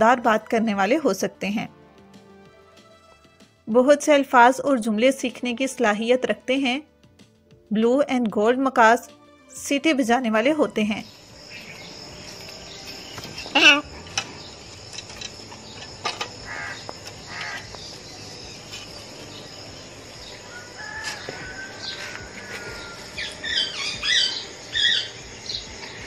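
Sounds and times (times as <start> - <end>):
macaw calling: 15.6 - 19.1, 20.4 - 26.0.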